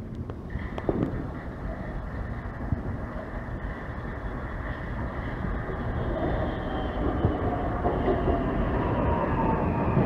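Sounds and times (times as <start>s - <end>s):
train rumbling: 0.0s - 10.0s.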